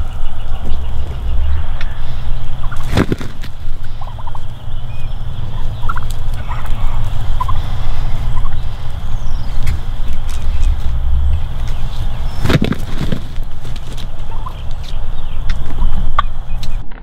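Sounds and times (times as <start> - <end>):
low rumble: 0.0 - 17.0
turkey gobbling: 0.2 - 16.7.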